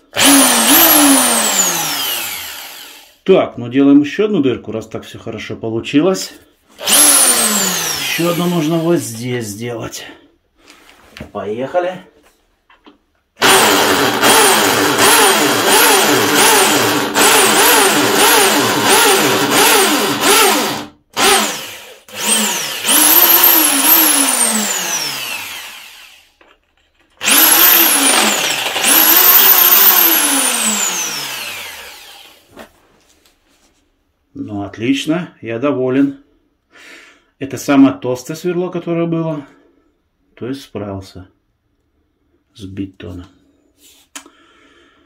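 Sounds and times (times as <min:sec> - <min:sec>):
drill motor winding down: 0:00.2 - 0:03.2, 0:06.8 - 0:09.1, 0:13.4 - 0:26.5, 0:27.2 - 0:32.5
impact drill boring into concrete: 0:00.2 - 0:03.2, 0:06.8 - 0:09.1, 0:13.4 - 0:26.6, 0:27.2 - 0:32.5.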